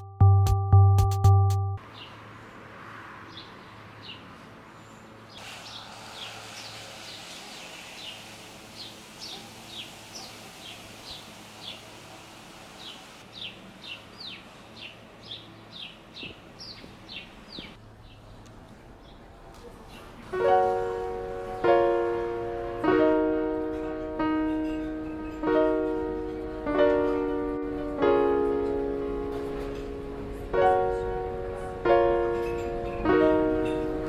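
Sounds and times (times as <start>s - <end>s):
songbird chirping: 12.8s - 20.2s.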